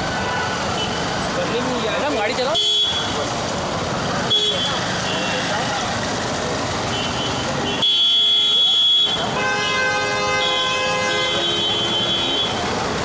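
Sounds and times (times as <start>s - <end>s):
traffic noise: 0.0s - 13.0s
high car horn beep: 2.5s - 3.2s, 6.9s - 12.6s
long held car honk: 6.9s - 12.6s.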